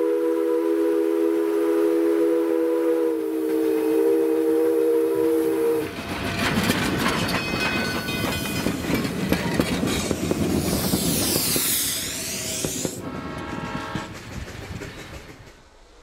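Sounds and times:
rushing of passing train cars: 0.0 - 16.0
train wheels clanking over rails: 5.8 - 16.0.

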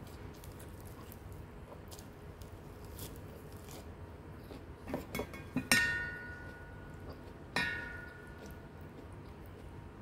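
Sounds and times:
utensils tapping steel bowl: 5.1 - 6.6, 7.6 - 8.4
bowl ringing: 5.6 - 6.9, 7.6 - 8.4.

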